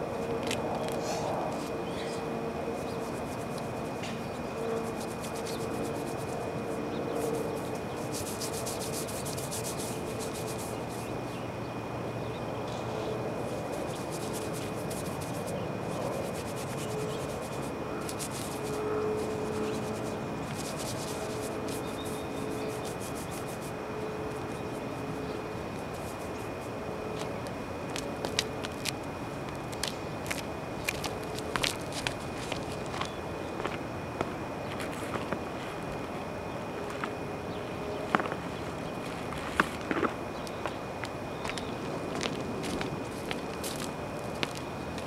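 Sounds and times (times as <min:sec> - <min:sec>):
background hum with high tone: 0:00.0 - 0:45.0
brush scrubbing roof surface: 0:02.7 - 0:11.2, 0:13.4 - 0:28.9.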